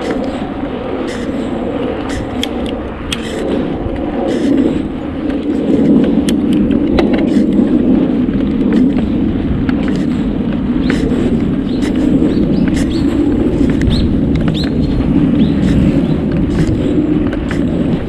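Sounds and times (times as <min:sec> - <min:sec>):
bicycle tyre noise: 0:00.0 - 0:18.0
rushing wind: 0:00.0 - 0:18.0.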